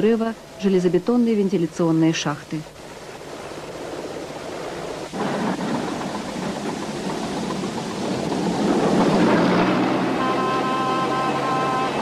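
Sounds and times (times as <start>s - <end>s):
heavy construction machinery running: 5.2s - 12.0s.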